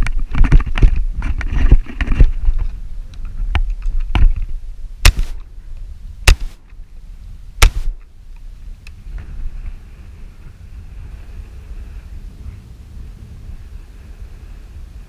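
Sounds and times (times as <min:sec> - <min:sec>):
wind buffeting microphone: 0:00.0 - 0:15.0
shotgun shots: 0:05.0 - 0:05.4, 0:06.3 - 0:06.6, 0:07.6 - 0:08.0.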